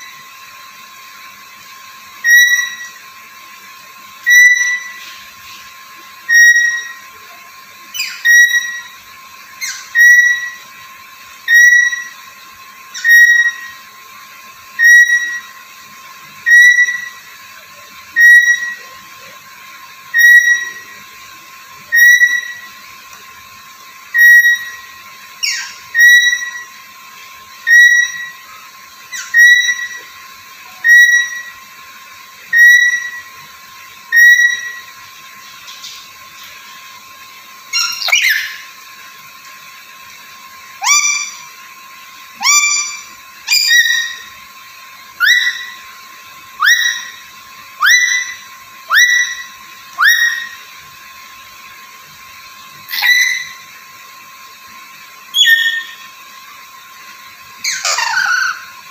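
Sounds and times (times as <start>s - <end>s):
parrot whistled call: 2.1s - 3.1s, 4.2s - 5.2s, 6.2s - 10.8s, 11.4s - 13.9s, 14.7s - 15.6s, 16.3s - 19.4s, 20.1s - 21.1s, 21.8s - 22.9s, 24.1s - 26.9s, 27.5s - 31.7s, 32.4s - 36.1s, 37.7s - 38.8s, 40.8s - 41.6s, 42.4s - 44.4s, 45.1s - 50.8s, 52.8s - 53.8s, 55.2s - 56.2s, 57.6s - 58.9s
short sliding chirps: 55.4s - 56.1s.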